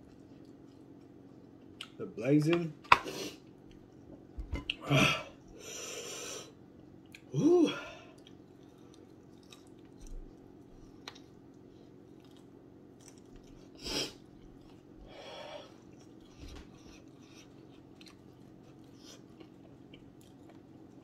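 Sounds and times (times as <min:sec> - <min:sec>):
man chewing: 0:00.0 - 0:02.0, 0:08.1 - 0:21.0
man gasping: 0:07.4 - 0:08.1.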